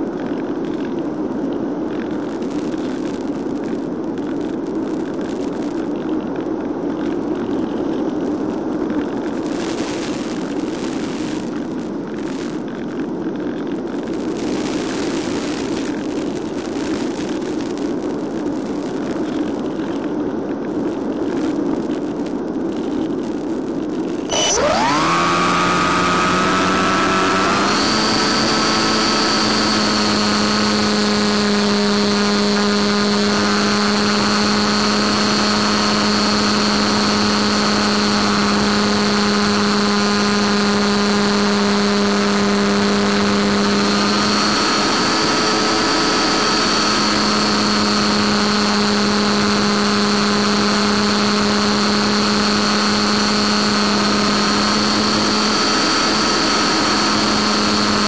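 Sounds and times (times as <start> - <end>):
model airplane motor humming: 24.3 - 58.0.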